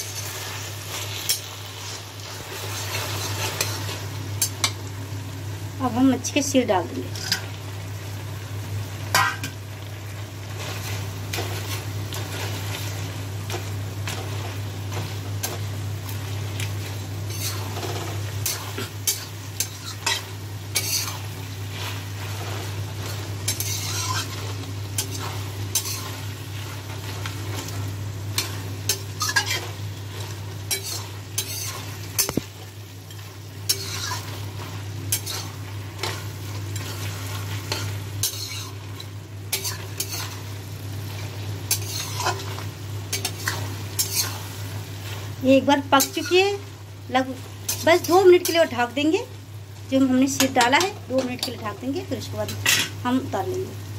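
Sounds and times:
food sizzling: 0:00.0 - 0:53.9
spatula scraping metal wok: 0:17.3 - 0:26.2, 0:28.4 - 0:32.4, 0:33.1 - 0:40.4, 0:41.7 - 0:44.6, 0:45.7 - 0:46.6.

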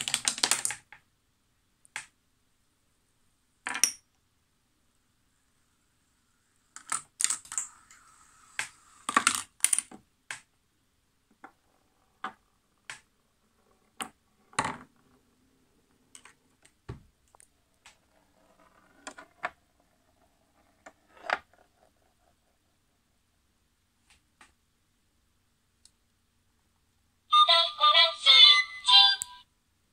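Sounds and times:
marbles rolling on wooden rails: 0:00.0 - 0:00.9, 0:06.7 - 0:10.0, 0:11.4 - 0:16.7, 0:17.3 - 0:22.9
small parts striking wooden desk: 0:03.6 - 0:04.1, 0:08.6 - 0:10.5.

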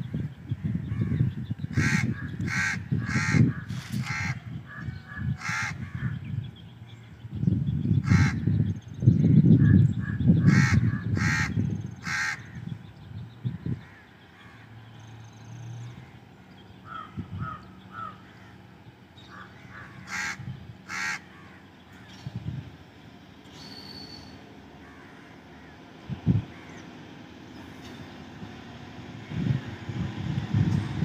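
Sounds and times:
crow cawing: 0:01.8 - 0:06.1, 0:08.0 - 0:08.4, 0:10.0 - 0:12.6, 0:16.8 - 0:18.6, 0:19.3 - 0:21.6, 0:24.8 - 0:25.8.

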